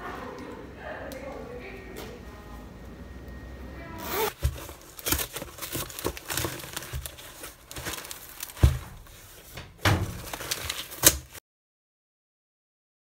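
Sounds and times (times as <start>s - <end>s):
cardboard ripping and crinkling: 4.0s - 11.4s.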